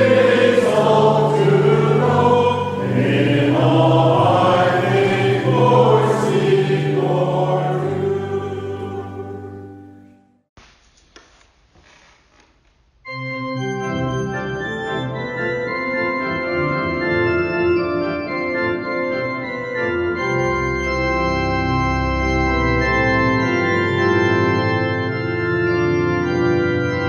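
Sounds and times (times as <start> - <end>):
organ chords: 0.0 - 10.4, 13.1 - 27.0
faint hiss: 10.6 - 12.8.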